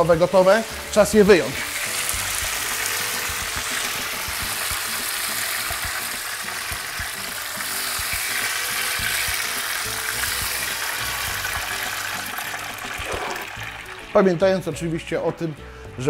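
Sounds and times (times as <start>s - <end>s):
deep-frying sizzle in oil: 0.0s - 14.2s.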